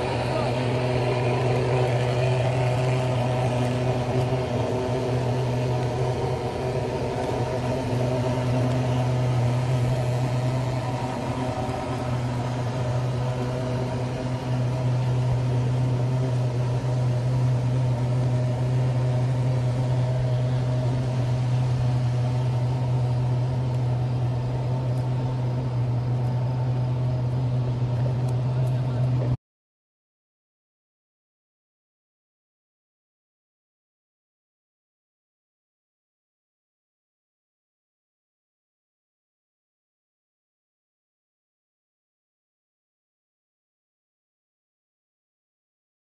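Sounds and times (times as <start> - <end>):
low mechanical hum: 0.0 - 29.4.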